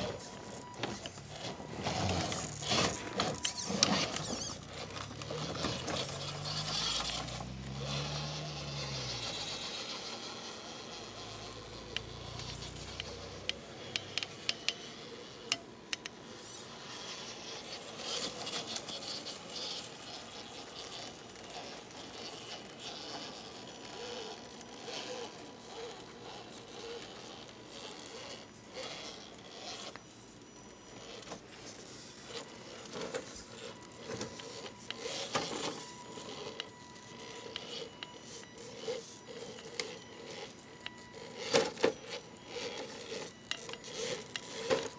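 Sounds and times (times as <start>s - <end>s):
tyres scraping: 0.0s - 30.3s
electric motor whirring: 0.0s - 44.9s.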